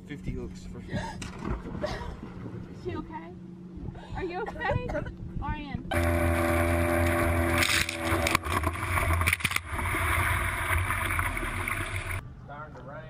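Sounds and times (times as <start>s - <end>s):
outboard motor running: 0.0s - 4.5s, 5.8s - 12.2s.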